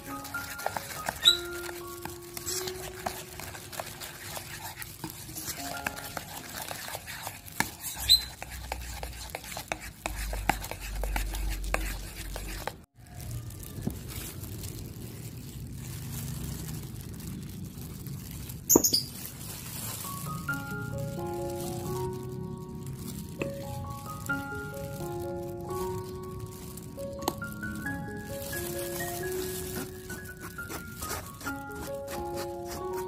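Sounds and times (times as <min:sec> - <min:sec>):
spoon stirring batter in bowl: 0:00.0 - 0:12.9.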